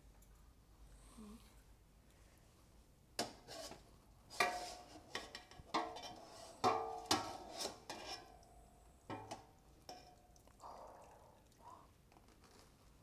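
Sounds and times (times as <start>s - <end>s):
metal utensils clanking on pot: 3.2s - 10.2s.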